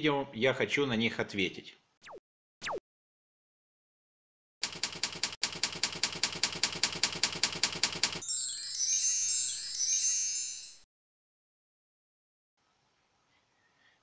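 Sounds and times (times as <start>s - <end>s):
typewriter-like clicks: 4.6s - 8.2s
high shimmering chime sparkle: 8.2s - 10.9s.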